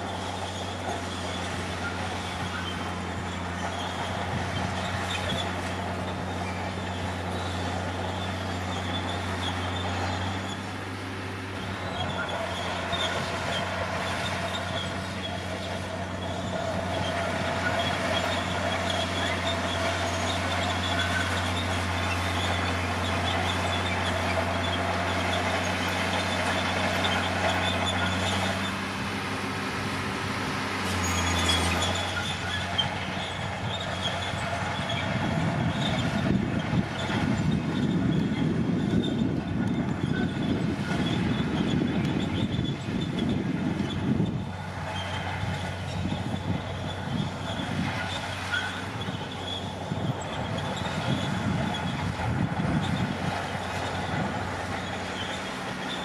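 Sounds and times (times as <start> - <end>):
diesel engine running: 0.0 - 56.0
steel tracks clanking and squealing: 0.0 - 56.0.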